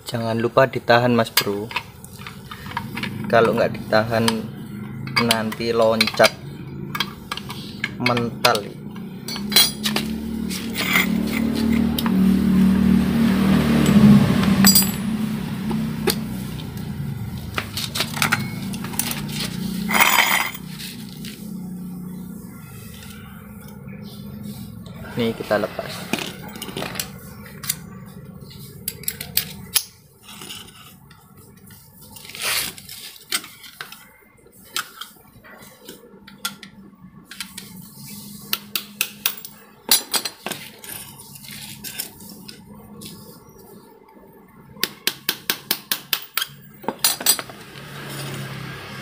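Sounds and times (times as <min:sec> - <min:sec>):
hand tools clinking on metal: 0:01.2 - 0:12.2, 0:13.8 - 0:15.1, 0:17.6 - 0:21.2.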